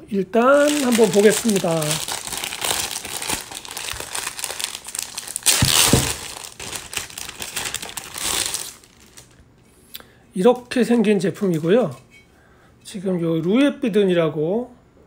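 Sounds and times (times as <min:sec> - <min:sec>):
plastic bag crinkling: 0:00.4 - 0:09.4.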